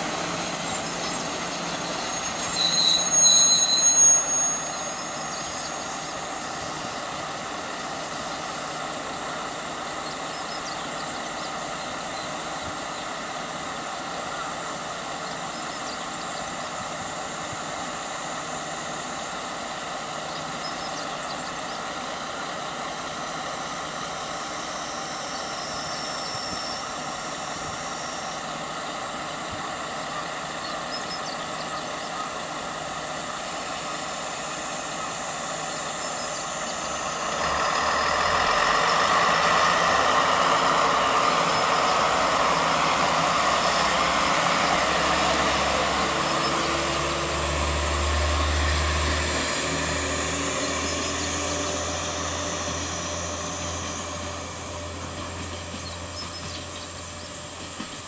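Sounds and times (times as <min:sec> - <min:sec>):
diesel engine idling: 0:00.0 - 0:02.6, 0:26.8 - 0:58.0.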